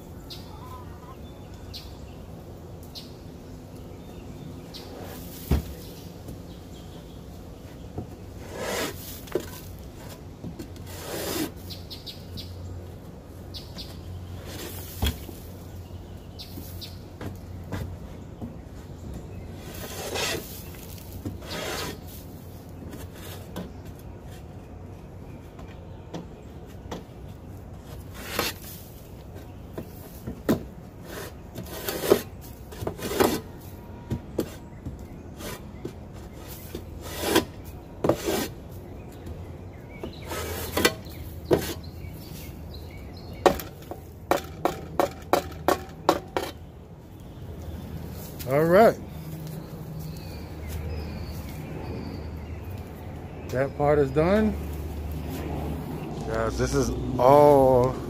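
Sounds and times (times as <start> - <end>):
metal shovel scraping wooden floor: 8.4 - 10.2, 10.8 - 11.6, 14.4 - 15.4, 19.6 - 22.3, 27.9 - 28.9, 31.0 - 33.7, 35.4 - 38.6, 40.1 - 42.5.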